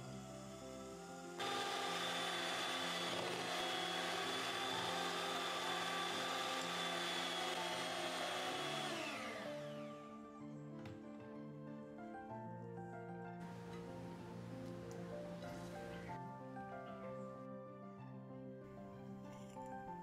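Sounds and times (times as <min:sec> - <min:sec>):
electric hand mixer whining: 0:00.0 - 0:10.4, 0:13.4 - 0:16.2.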